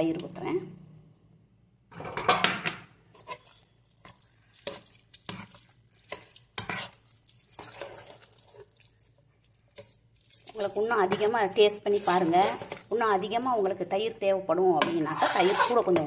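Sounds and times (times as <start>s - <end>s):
spoon scraping metal pot: 3.1s - 8.8s, 9.6s - 13.8s, 14.8s - 16.0s.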